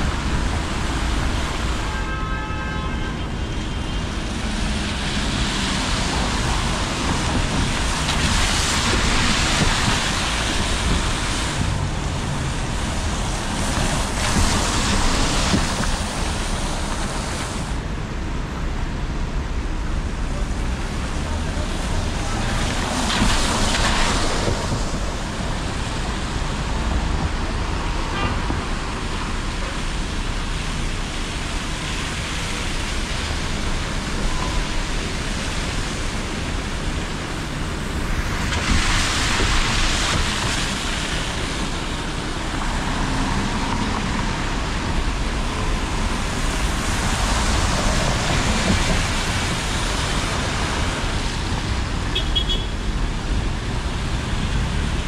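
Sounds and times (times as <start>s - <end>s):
bus passing: 0.0s - 55.0s
low traffic rumble: 0.0s - 55.0s
tyres hissing on wet road: 0.0s - 55.0s.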